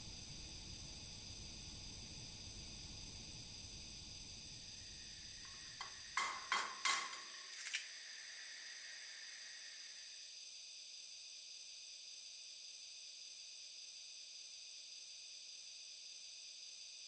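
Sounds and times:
egg tapping on metal saucepan: 0:05.5 - 0:07.5.

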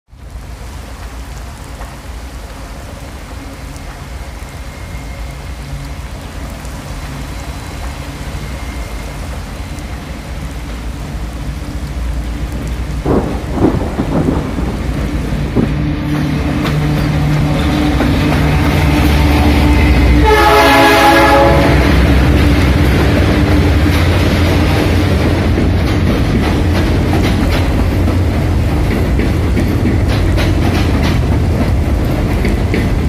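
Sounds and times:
diesel locomotive engine: 0:00.1 - 0:33.0
heavy rain: 0:00.1 - 0:33.0
low rumbling thunder: 0:12.4 - 0:29.6
sharp thunder cracks: 0:13.0 - 0:16.7.

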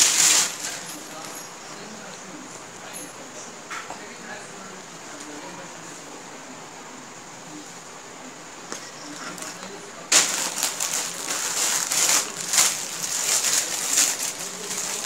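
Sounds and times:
plastic packaging crinkling: 0:00.0 - 0:01.4, 0:09.3 - 0:15.0.

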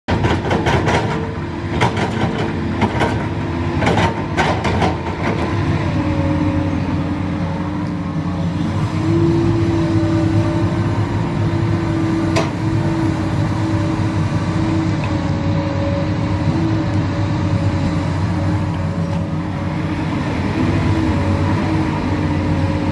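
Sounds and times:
excavator diesel engine running: 0:00.1 - 0:22.9.

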